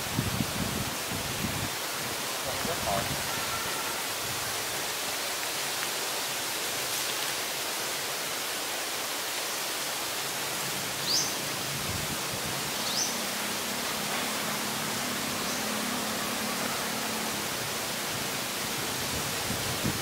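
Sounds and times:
outdoor background hiss: 0.0s - 20.0s.

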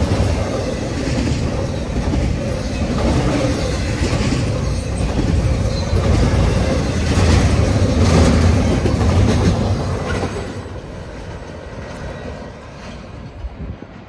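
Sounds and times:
freight train rolling past: 0.0s - 14.0s.

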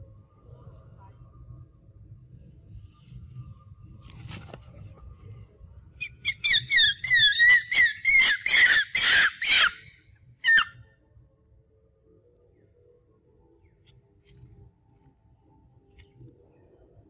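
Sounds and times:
monkey screaming: 6.2s - 9.8s.

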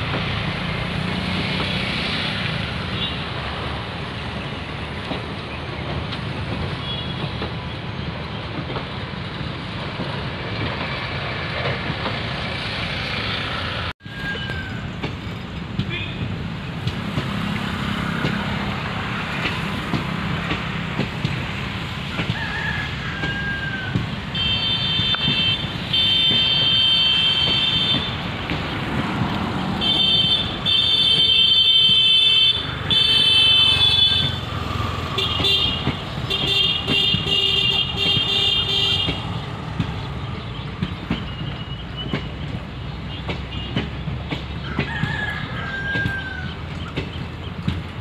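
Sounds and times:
train rumbling past: 0.0s - 48.0s
high-pitched vehicle horn honking: 24.4s - 28.2s, 29.8s - 34.4s, 35.2s - 39.2s.

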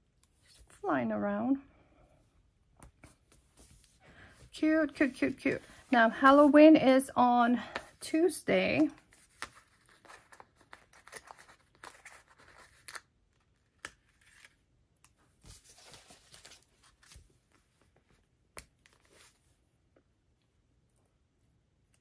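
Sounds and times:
paper sticker sheets rustling: 4.6s - 7.0s, 7.6s - 14.6s, 15.4s - 17.7s.

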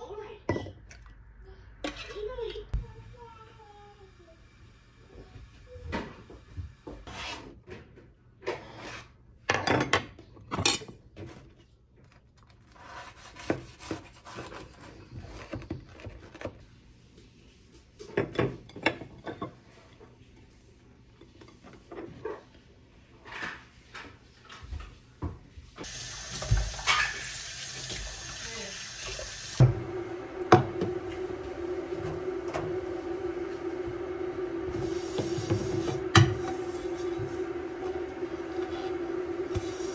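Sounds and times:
tap running into metal sink: 25.8s - 28.3s.

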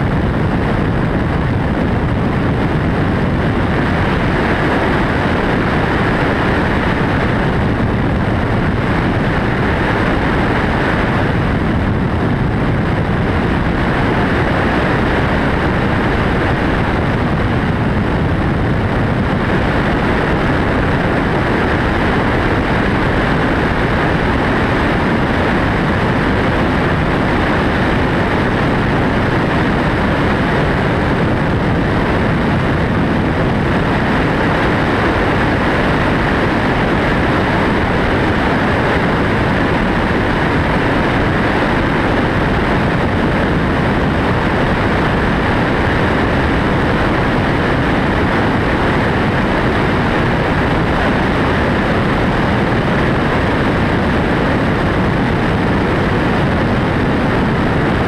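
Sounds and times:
helicopter engine and rotor noise: 0.0s - 58.0s.

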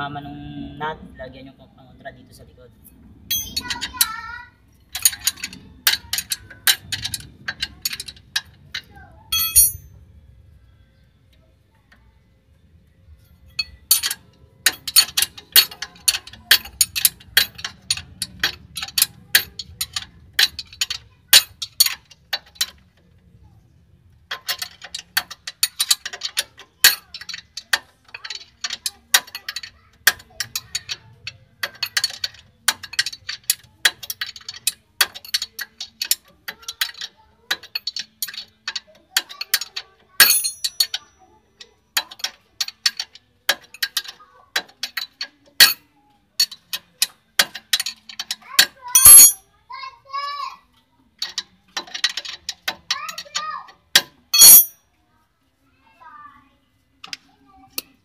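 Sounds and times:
ratchet wrench clicking: 48.9s - 49.4s, 54.0s - 54.8s.

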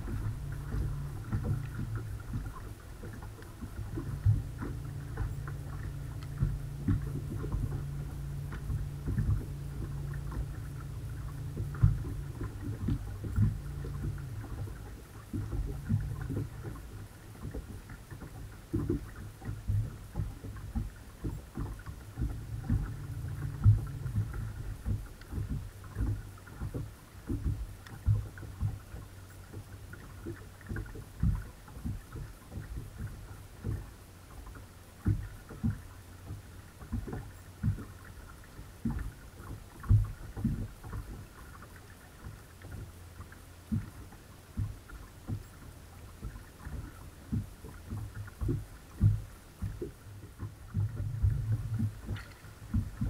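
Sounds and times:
waves slapping boat hull: 0.0s - 53.0s
electric motor hum: 22.3s - 24.9s.

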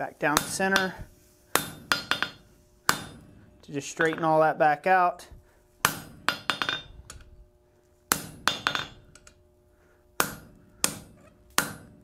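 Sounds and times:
hammer striking tool on anvil: 0.3s - 3.3s, 5.8s - 7.0s, 8.1s - 9.1s, 10.2s - 12.0s
metallic ringing of anvil: 1.6s - 3.3s, 5.8s - 7.0s, 8.1s - 9.1s.

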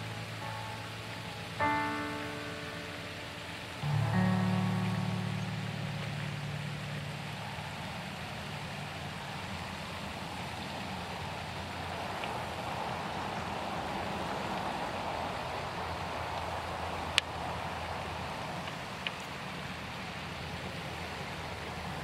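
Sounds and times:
sustained music notes: 0.0s - 9.1s
low rushing outdoor hum: 0.0s - 22.0s.

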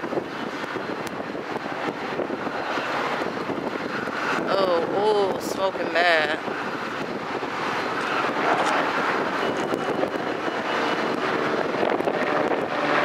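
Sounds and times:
diesel locomotive engine: 0.0s - 13.0s
faint steady tones: 5.5s - 12.9s.

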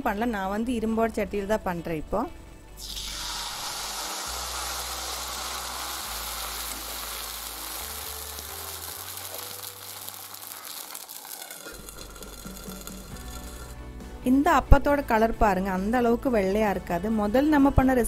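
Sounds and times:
batter sizzling on a hot griddle: 2.8s - 13.8s.

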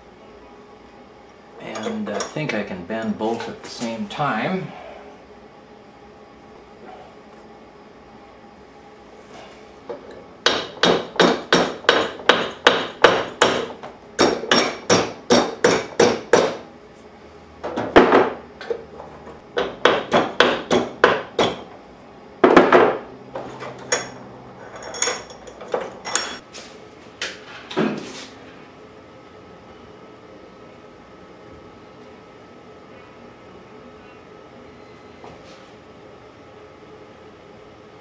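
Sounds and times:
hammer striking metal: 10.4s - 16.6s.

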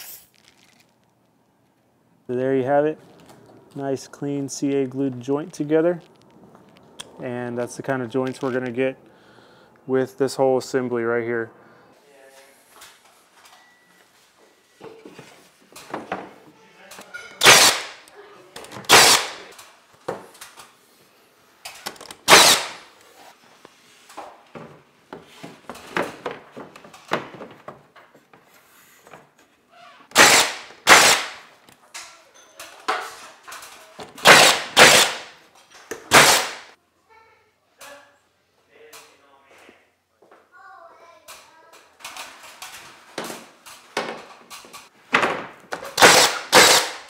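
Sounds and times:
nail gun firing: 17.4s - 18.0s, 18.9s - 19.5s, 22.2s - 22.8s, 30.1s - 31.5s, 34.2s - 35.4s, 36.1s - 36.7s, 45.9s - 47.0s.

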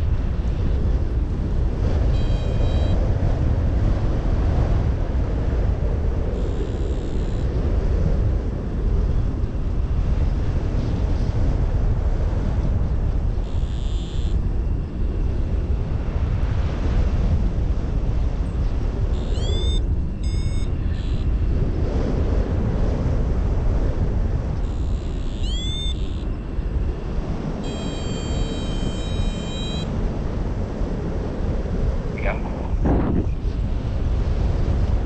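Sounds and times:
wind rushing over microphone: 0.0s - 35.0s
held high tone: 19.2s - 21.3s, 24.7s - 26.2s, 27.6s - 29.9s
high rising chirps: 19.2s - 21.3s, 24.7s - 26.2s.

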